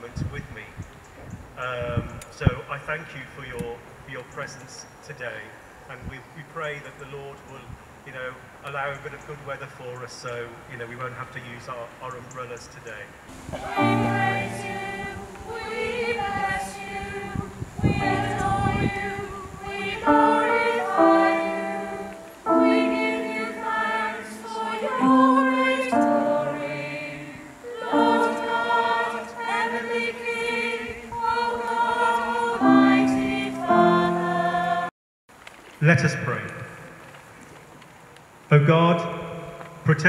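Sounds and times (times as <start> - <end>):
choir singing long notes: 13.3 - 34.9.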